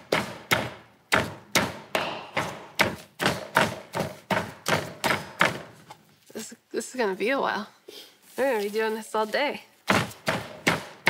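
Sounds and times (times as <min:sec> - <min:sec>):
pestle pounding rice in wooden bowl: 0:00.0 - 0:05.9, 0:09.9 - 0:11.0.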